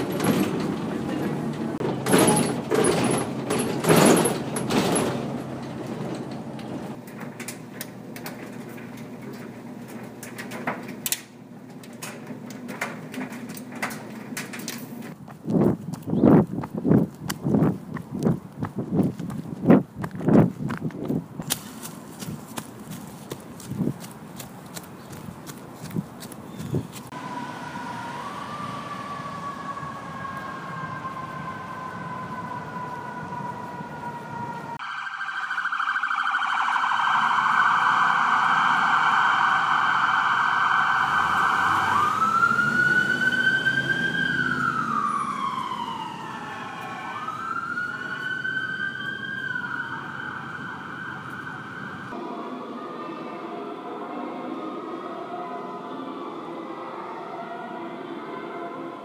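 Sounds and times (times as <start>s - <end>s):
siren wailing: 27.1s - 59.0s.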